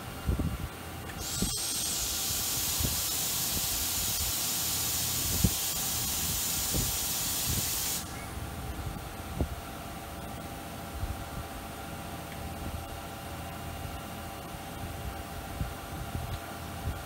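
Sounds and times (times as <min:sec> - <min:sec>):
machine loud steady hiss: 0:01.2 - 0:08.4.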